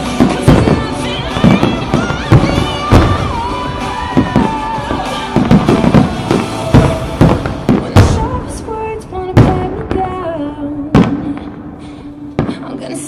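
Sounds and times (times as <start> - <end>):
music over loudspeakers: 0.0 - 11.3
fireworks bursting: 0.0 - 13.0.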